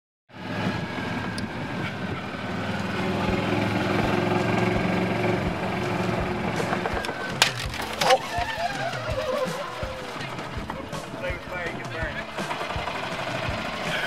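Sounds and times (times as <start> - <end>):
golf cart motor running: 0.4 - 14.0.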